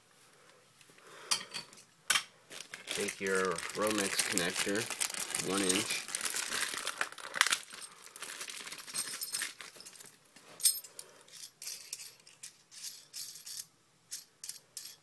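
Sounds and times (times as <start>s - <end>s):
plastic bag crinkling: 2.5s - 10.2s
small metal parts clinking: 5.4s - 6.2s, 7.2s - 15.0s.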